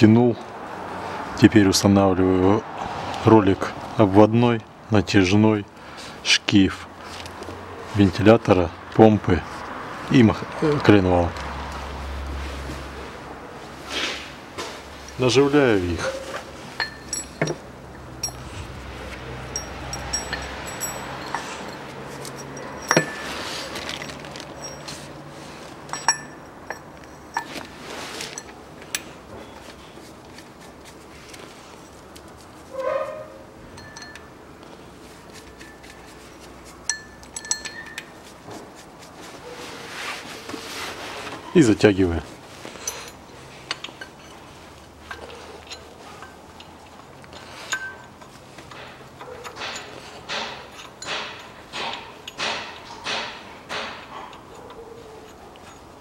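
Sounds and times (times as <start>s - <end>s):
metal parts clinking: 16.0s - 29.7s, 33.7s - 34.4s, 35.3s - 38.3s, 42.7s - 56.0s
hand tool clicking on bolts: 19.5s - 25.0s, 45.1s - 55.9s.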